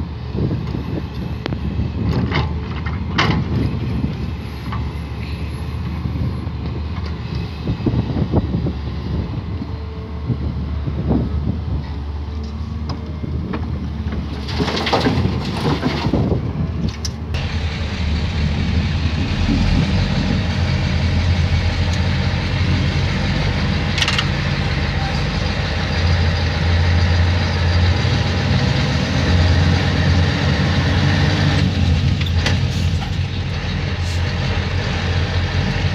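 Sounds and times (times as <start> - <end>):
diesel truck engine running: 17.4 - 31.1.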